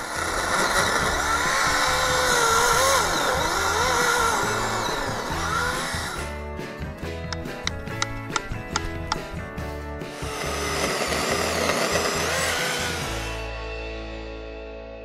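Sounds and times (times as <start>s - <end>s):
electric chainsaw cutting log: 0.0s - 6.4s, 10.0s - 14.0s
background music: 0.0s - 15.0s.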